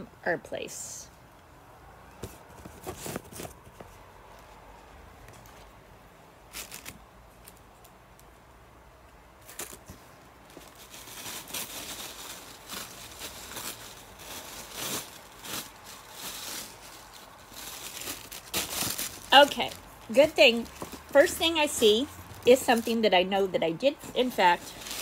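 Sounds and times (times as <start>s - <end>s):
packaging rustling and crinkling: 2.1s - 4.1s, 6.5s - 8.0s, 9.4s - 23.1s, 24.0s - 25.0s.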